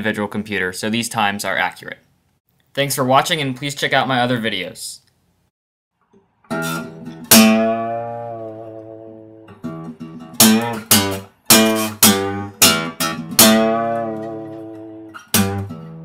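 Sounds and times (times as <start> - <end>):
strummed guitar chords: 6.4 - 16.0.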